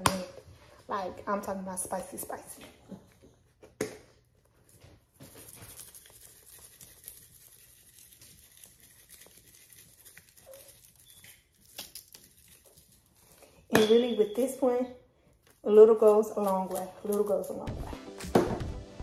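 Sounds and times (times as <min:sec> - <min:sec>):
dry seasoning pattering: 0:05.4 - 0:13.4.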